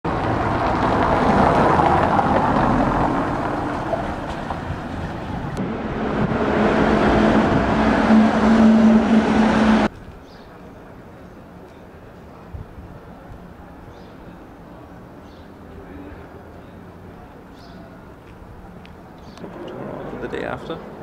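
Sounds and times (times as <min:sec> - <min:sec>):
cars driving past: 0:00.1 - 0:09.9, 0:19.3 - 0:21.0
low hum: 0:00.1 - 0:09.9.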